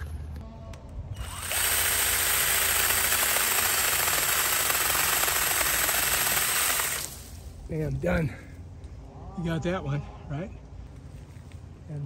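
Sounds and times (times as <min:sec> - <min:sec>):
chainsaw cutting branch: 0:01.2 - 0:07.4.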